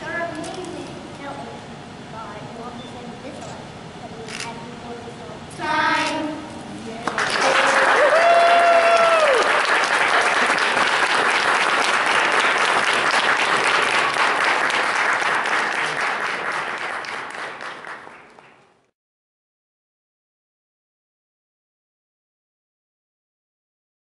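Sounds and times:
audience applauding: 0:07.0 - 0:18.8
person cheering: 0:07.4 - 0:09.6.

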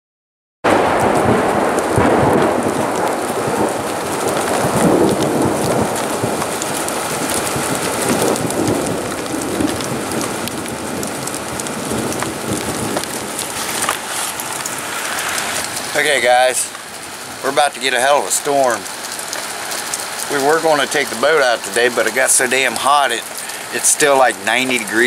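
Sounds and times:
rain falling: 0:00.7 - 0:25.0
thunder rumbling: 0:00.7 - 0:25.0.

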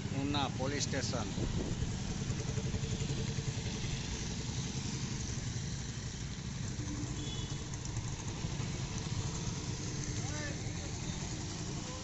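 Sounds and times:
road noise: 0:00.0 - 0:12.0
vehicle engine running: 0:00.0 - 0:12.0.

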